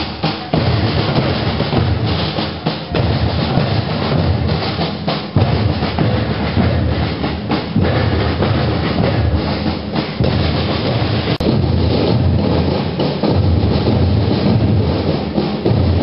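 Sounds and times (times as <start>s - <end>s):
bass drums: 0.0s - 16.0s
snare drums march beat: 0.0s - 16.0s.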